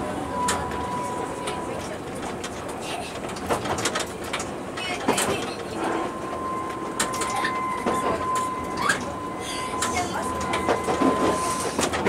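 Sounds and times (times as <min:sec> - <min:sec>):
tram running noise: 0:00.0 - 0:12.0
tram wheels clicking on track: 0:00.0 - 0:12.0
high whine: 0:05.7 - 0:12.0.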